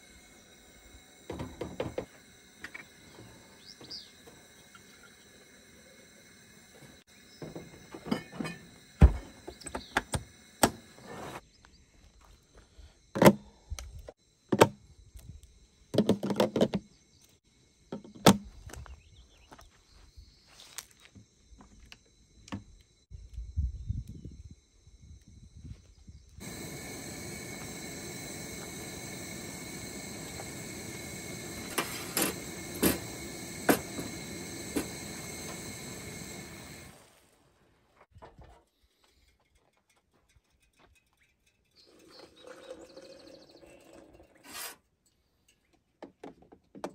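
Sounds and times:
camp stove hissing: 0:00.0 - 0:11.4, 0:26.4 - 0:38.1, 0:41.8 - 0:44.9.

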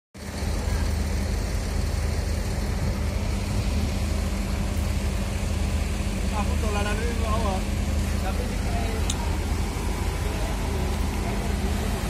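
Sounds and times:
diesel engine idling low: 0:00.2 - 0:12.0.

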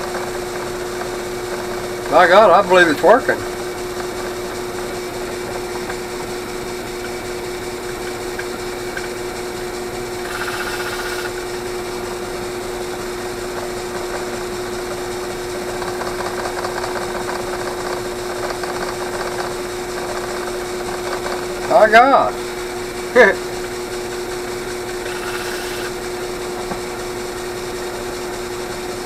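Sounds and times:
drill press running: 0:00.0 - 0:29.0
harsh hiss of machining: 0:10.2 - 0:12.5, 0:24.9 - 0:26.0.

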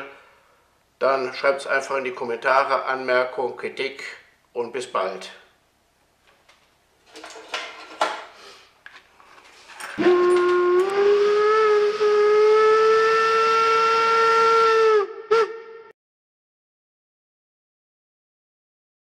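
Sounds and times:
train whistle blast: 0:10.0 - 0:15.9.

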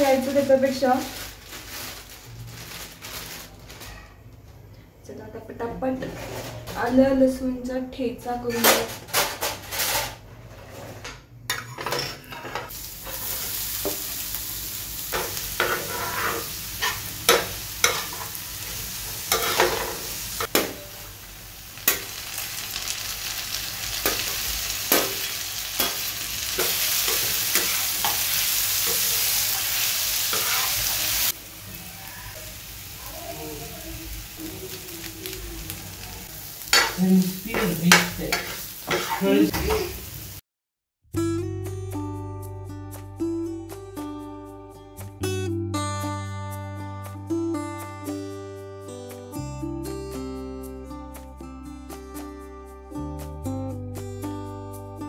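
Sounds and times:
vegetables sizzling in a pan: 0:00.0 - 0:03.6, 0:12.7 - 0:40.4
spatula scraping and tapping pan: 0:15.2 - 0:18.3, 0:36.7 - 0:39.9.

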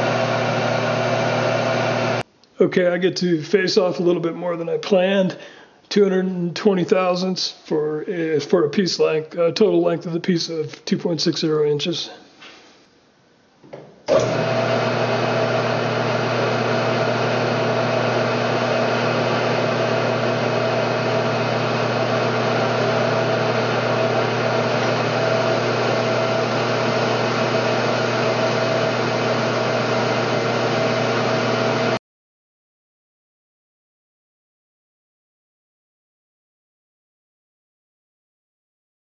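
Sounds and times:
metal lathe humming and whining: 0:00.0 - 0:02.2, 0:14.1 - 0:32.0.

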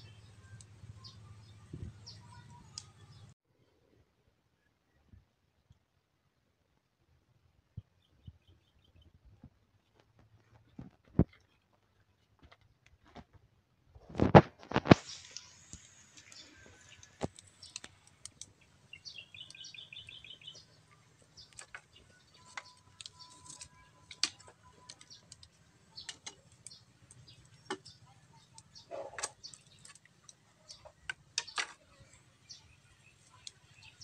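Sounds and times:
bird chirping: 0:00.0 - 0:03.4, 0:14.8 - 0:34.0
wood fire crackling and popping: 0:14.0 - 0:31.8.

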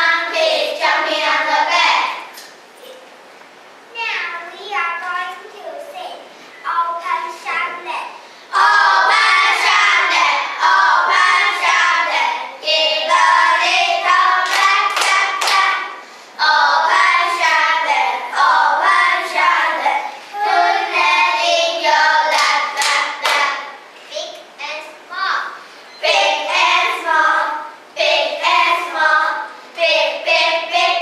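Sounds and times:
children singing in unison: 0:00.0 - 0:02.3, 0:08.5 - 0:23.7, 0:26.0 - 0:31.0
hand claps: 0:14.4 - 0:15.7, 0:22.3 - 0:23.5.

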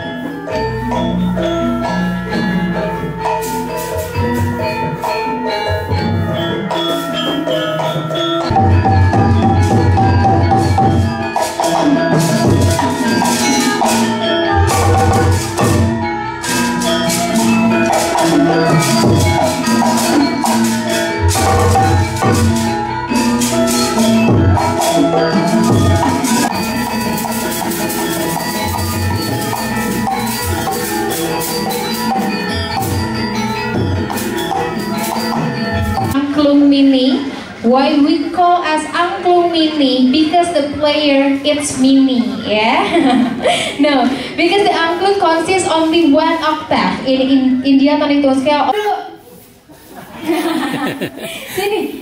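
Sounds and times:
metal keyed instruments melody: 0:00.0 - 0:36.3
metal gongs and metallophones: 0:00.0 - 0:48.8, 0:50.2 - 0:51.4
hand drum strokes: 0:02.4 - 0:36.2.

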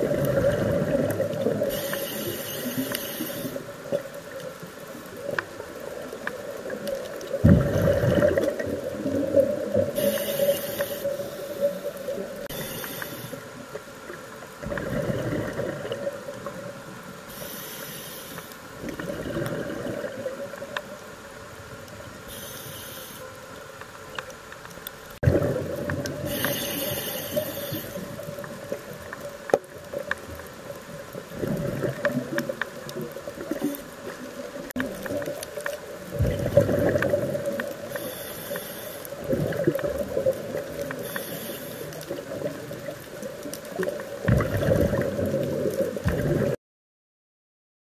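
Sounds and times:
regulator inhalation hiss: 0:01.7 - 0:03.8, 0:10.0 - 0:13.6, 0:17.3 - 0:18.7, 0:22.3 - 0:23.4, 0:26.2 - 0:28.3, 0:37.8 - 0:39.2, 0:40.9 - 0:42.0
bubbling exhalations: 0:07.4 - 0:08.8.

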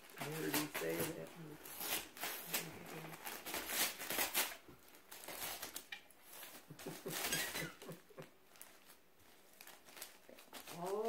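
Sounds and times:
dog tearing wrapping paper: 0:00.0 - 0:11.0.

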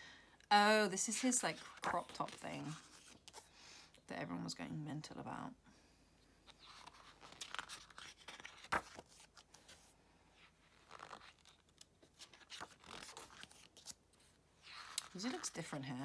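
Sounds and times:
glossy pages rustling: 0:01.1 - 0:03.5, 0:06.4 - 0:16.0.

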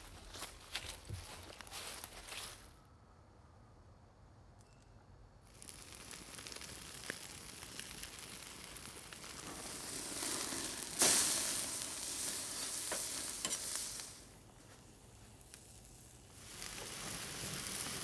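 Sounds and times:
sharp crackles of fire: 0:00.0 - 0:02.7, 0:05.4 - 0:18.0
meat sizzling on a grill: 0:05.5 - 0:18.0.

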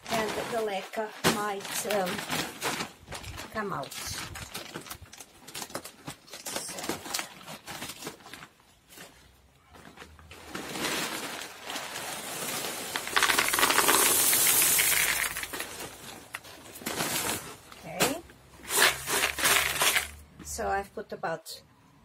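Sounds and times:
plastic bag crinkling: 0:00.0 - 0:20.3
clay pebbles pouring into pot: 0:11.7 - 0:16.0, 0:18.7 - 0:20.2.

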